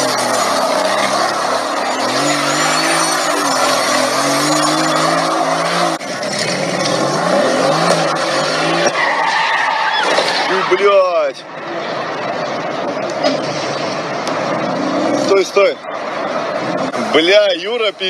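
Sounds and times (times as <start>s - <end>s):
car engine revving hard: 0.0s - 9.0s.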